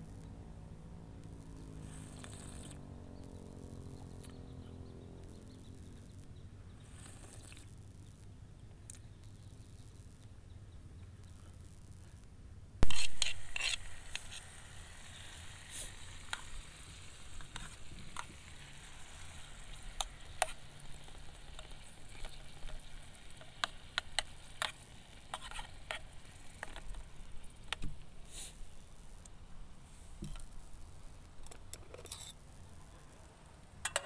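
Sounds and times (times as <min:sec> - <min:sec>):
spatula scraping pan: 0:12.8 - 0:26.9
food sizzling in hot oil: 0:12.8 - 0:29.2.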